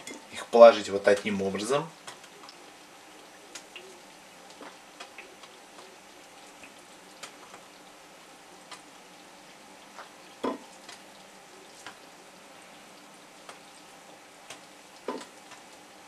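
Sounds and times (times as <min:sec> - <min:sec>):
ribs sizzling in a frying pan: 0:00.0 - 0:16.0.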